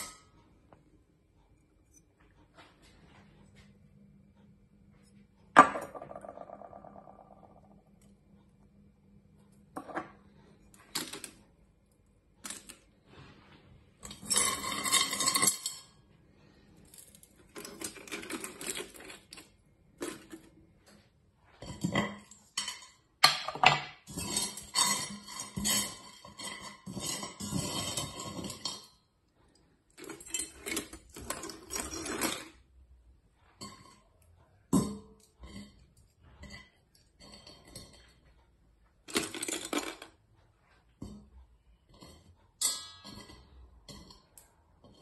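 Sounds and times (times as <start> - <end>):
metal scraps clinking and scraping: 12.4 - 12.8, 14.0 - 16.0, 16.9 - 20.6, 24.0 - 29.0, 29.9 - 32.6, 39.0 - 40.1.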